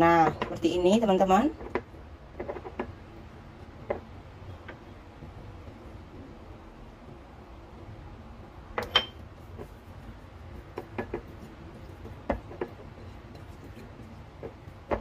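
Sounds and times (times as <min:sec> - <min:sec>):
dishes clinking and knocking: 0:08.8 - 0:09.2.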